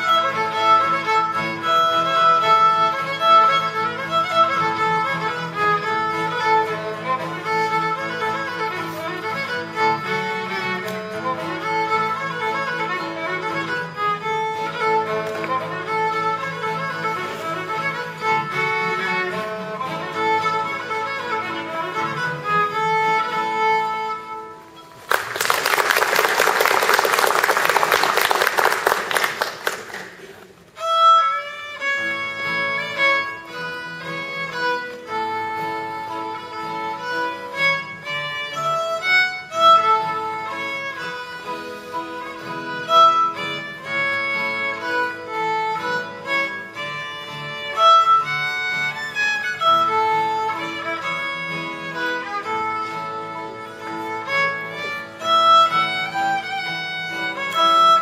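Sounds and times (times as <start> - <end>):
acoustic guitar: 0.0 - 25.3, 30.1 - 58.0
fiddle: 0.0 - 58.0
audience applause: 25.0 - 30.6.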